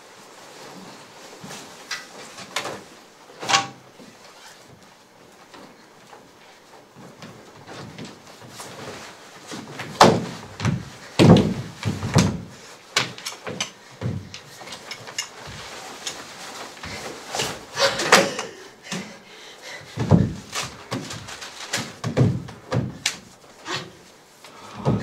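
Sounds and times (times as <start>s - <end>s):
cloth rustling: 0.0s - 18.7s, 19.8s - 25.0s
shoes dropping on stage floor: 7.0s - 19.0s, 20.0s - 23.5s.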